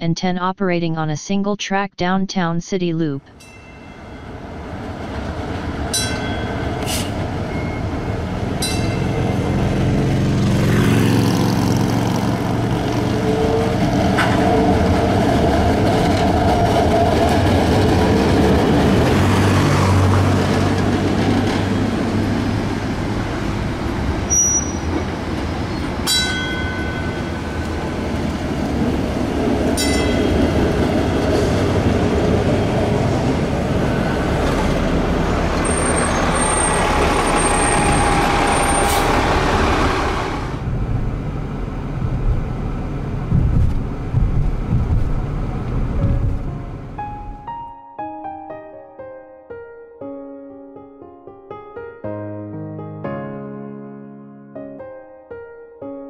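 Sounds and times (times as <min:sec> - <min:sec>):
streetcar rumbling on rails: 0:11.9 - 0:47.0.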